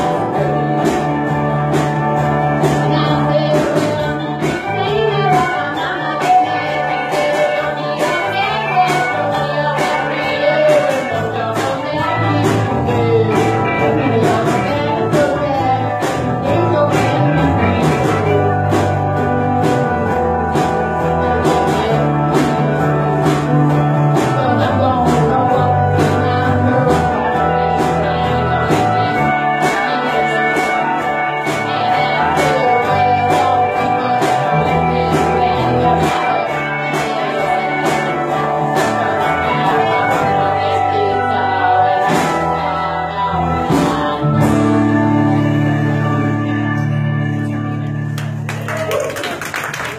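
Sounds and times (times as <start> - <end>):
person singing: 0.0 - 48.1.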